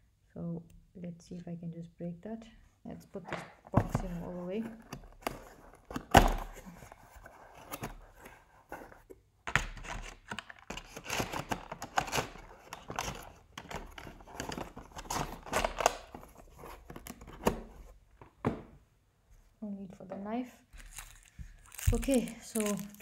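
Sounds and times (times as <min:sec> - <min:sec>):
packaging rustling and scraping: 0:03.7 - 0:09.2, 0:09.8 - 0:18.0, 0:20.7 - 0:23.0.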